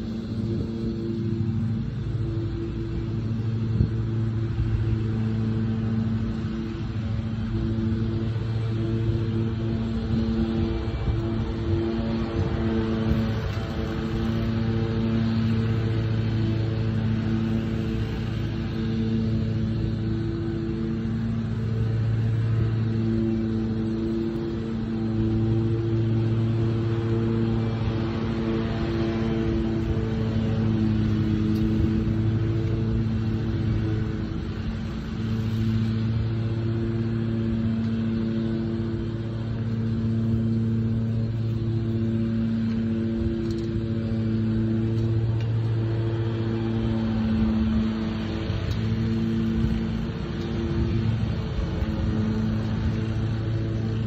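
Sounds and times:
wind rumbling on microphone: 0:00.0 - 0:16.5
vehicle engine idling: 0:00.0 - 0:54.0.

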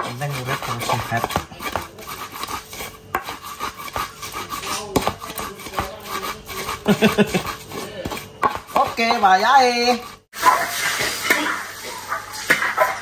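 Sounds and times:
pestle knocking against mortar: 0:00.0 - 0:09.4
pestle grinding in mortar: 0:00.0 - 0:10.4.

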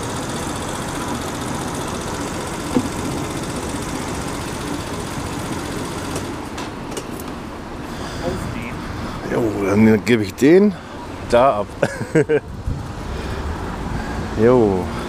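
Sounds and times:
scooter engine idling: 0:00.0 - 0:08.7.

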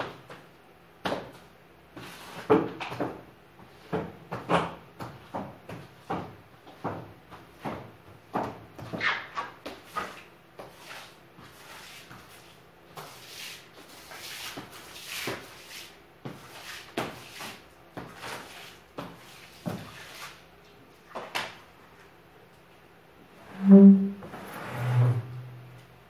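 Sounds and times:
broom swishing on hard floor: 0:10.0 - 0:20.5.

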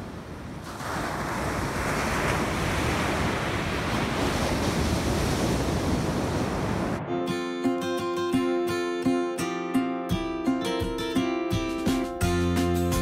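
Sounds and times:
wind on microphone: 0:00.0 - 0:07.1
ocean surf breaking: 0:00.0 - 0:09.0.

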